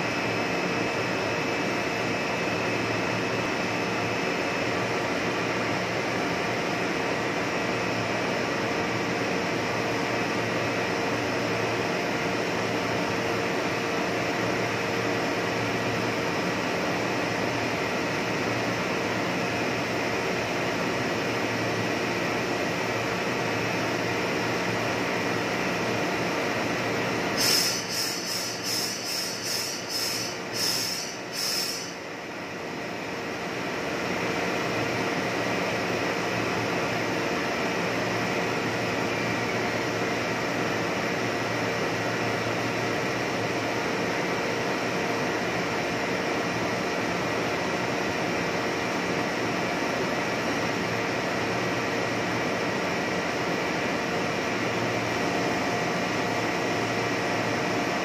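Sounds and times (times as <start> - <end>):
extrusion machine drone: 26.8 - 32.2
short high-pitched pulses: 27.4 - 32.0.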